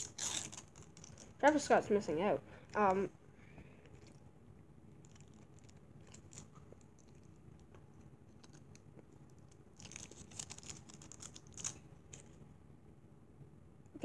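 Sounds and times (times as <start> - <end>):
food packaging crinkling: 0.0 - 1.6, 5.0 - 7.4, 8.4 - 12.4.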